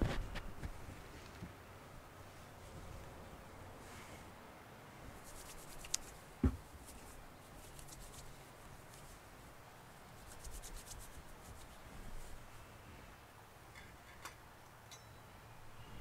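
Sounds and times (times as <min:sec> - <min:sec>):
soft handling rubbing: 0:05.0 - 0:12.8
small clicks: 0:05.7 - 0:06.1
dull thump: 0:06.4 - 0:06.7.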